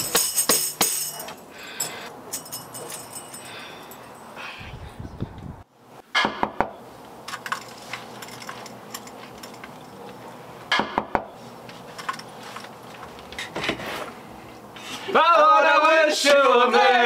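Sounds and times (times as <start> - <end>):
sharp knocks: 10.7 - 11.3.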